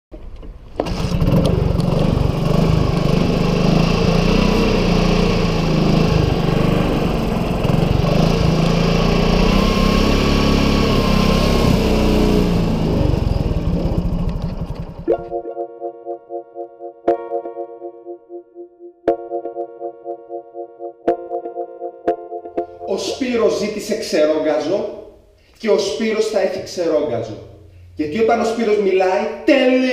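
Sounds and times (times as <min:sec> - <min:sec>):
scooter engine running: 0:00.8 - 0:15.3.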